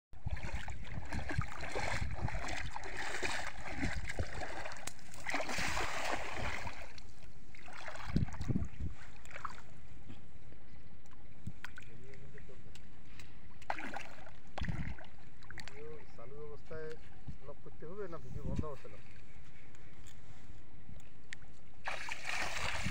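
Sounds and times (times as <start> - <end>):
net splashing into water: 0.2 - 9.7, 13.6 - 15.8, 21.8 - 22.9
water sloshing: 0.2 - 10.3, 11.0 - 16.2, 21.4 - 22.9.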